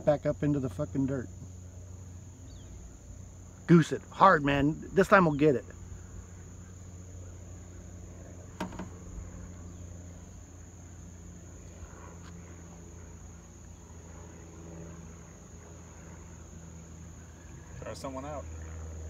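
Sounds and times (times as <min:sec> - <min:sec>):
distant motorboat engine rumble: 0:00.0 - 0:19.0
high-pitched insect drone: 0:00.0 - 0:19.0.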